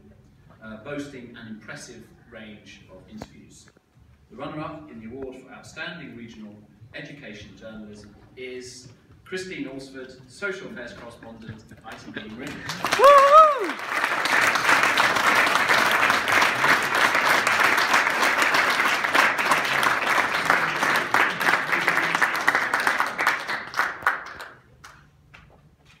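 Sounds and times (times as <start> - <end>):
audience applauding: 12.4 - 25.0.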